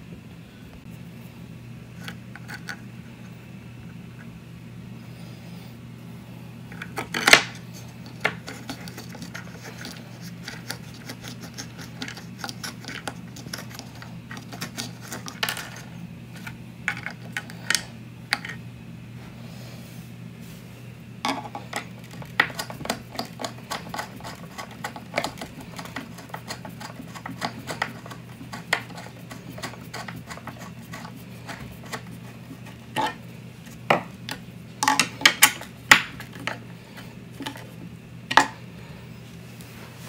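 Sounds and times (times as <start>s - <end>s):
screwdriver clicking and scraping: 21.3s - 33.2s.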